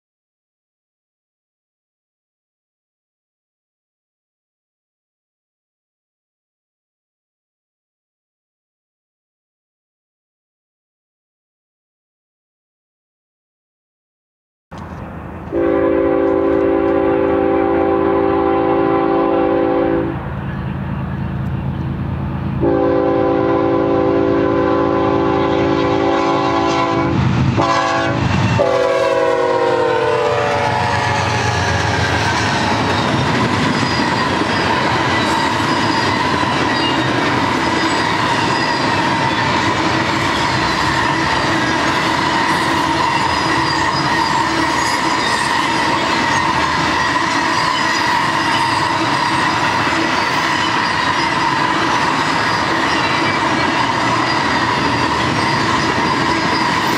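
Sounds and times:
freight train rumbling: 0:14.7 - 0:56.9
locomotive air horn: 0:15.5 - 0:20.2, 0:22.6 - 0:33.0.

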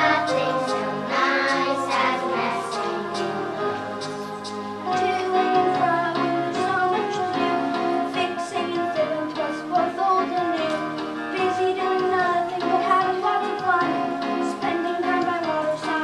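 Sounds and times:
children singing together: 0:00.0 - 0:10.8
instrumental accompaniment: 0:00.0 - 0:16.0.

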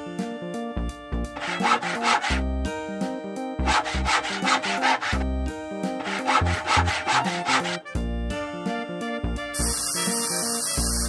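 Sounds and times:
background music: 0:00.0 - 0:11.0
saw rasping back and forth: 0:01.4 - 0:02.5, 0:03.6 - 0:08.0.

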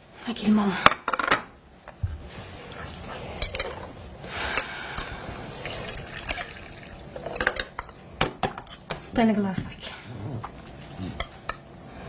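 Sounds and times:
drink pouring into glass: 0:05.6 - 0:07.0.

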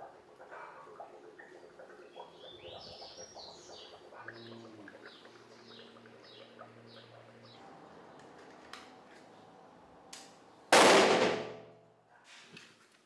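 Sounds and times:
birds chirping: 0:00.0 - 0:10.7.

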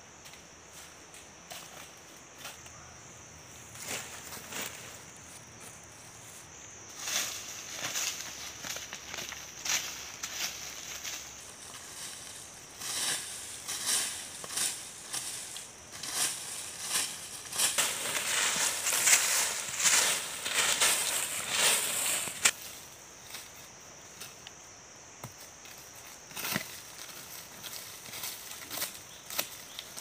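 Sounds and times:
steady high-pitched hiss: 0:00.0 - 0:30.0
dry leaves swept on dirt: 0:03.6 - 0:24.4.

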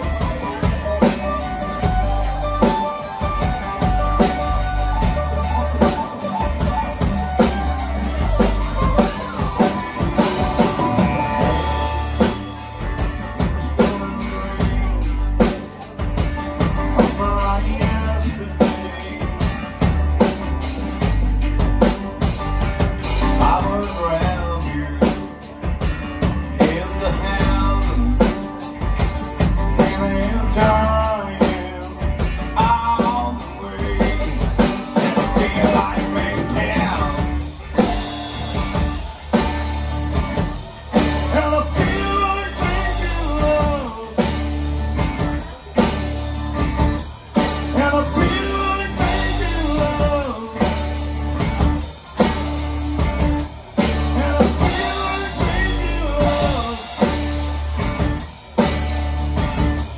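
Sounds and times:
acoustic-electric guitar: 0:00.0 - 0:59.9
drum kit: 0:00.0 - 0:59.9
person singing: 0:13.4 - 0:20.0, 0:23.2 - 0:25.6, 0:26.5 - 0:28.8, 0:29.7 - 0:38.9, 0:41.0 - 0:44.6, 0:47.4 - 0:51.8, 0:53.8 - 0:57.4.

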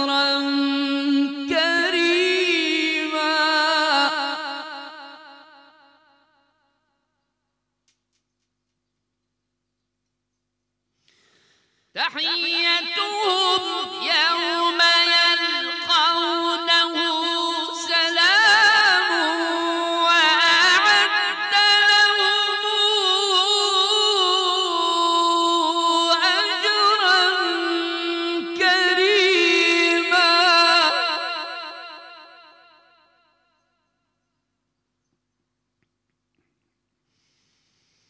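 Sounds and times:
man reciting melodically: 0:00.0 - 0:05.7, 0:12.0 - 0:32.7.

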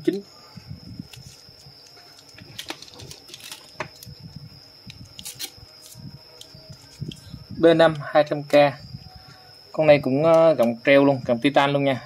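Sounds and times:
faint high-pitched whine: 0:00.0 - 0:12.0
eyeglass frames clicking and rustling: 0:01.1 - 0:04.2.

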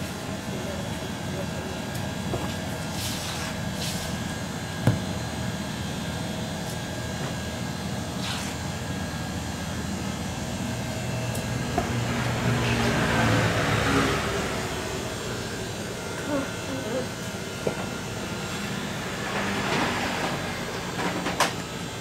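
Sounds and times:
steady machine noise: 0:08.7 - 0:22.0.

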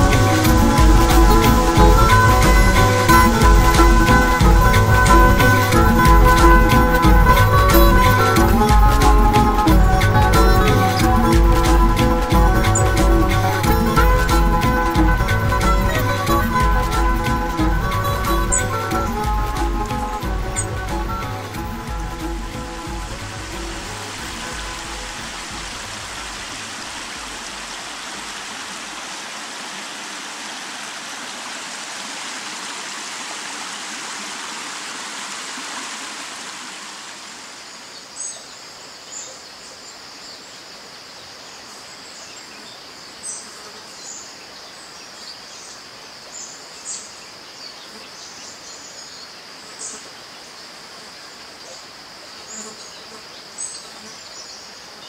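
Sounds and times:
stream water rushing: 0:00.0 - 0:39.1
high insect buzz: 0:45.7 - 0:55.0.

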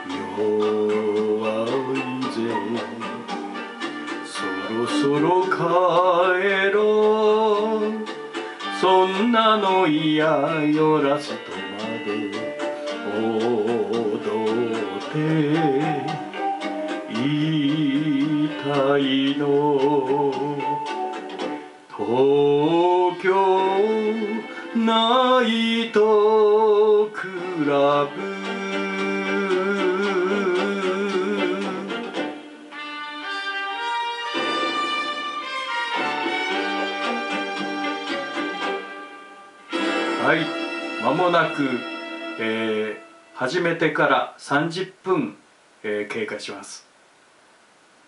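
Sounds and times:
person singing with vibrato: 0:00.0 - 0:32.8, 0:39.0 - 0:43.6
karaoke backing track: 0:00.0 - 0:45.0.

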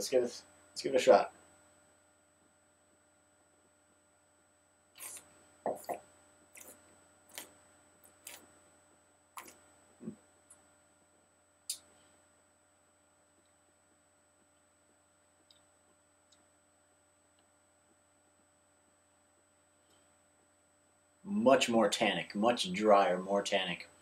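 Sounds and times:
wine slurping in mouth: 0:05.0 - 0:06.0.

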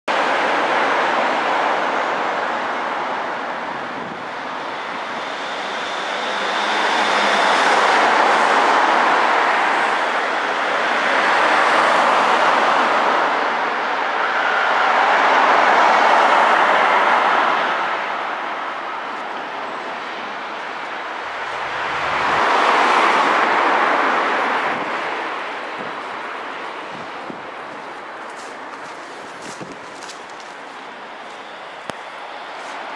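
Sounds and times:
vehicles passing: 0:03.7 - 0:32.9.

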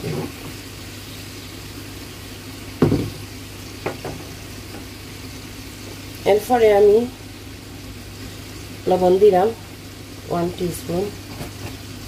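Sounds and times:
garlic sizzling in oil: 0:00.0 - 0:12.0
thump: 0:02.8 - 0:03.2.

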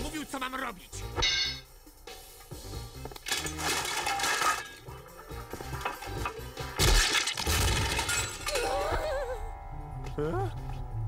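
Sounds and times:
background music: 0:00.0 - 0:11.0
ladder shaking and collapsing: 0:03.2 - 0:08.9
loud crash and clatter: 0:03.3 - 0:08.6.

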